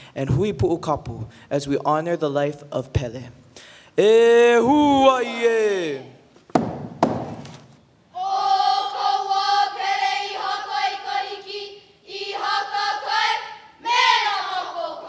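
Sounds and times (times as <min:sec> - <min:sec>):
leader calling: 0:04.0 - 0:06.2
sharp knock: 0:06.5 - 0:07.7.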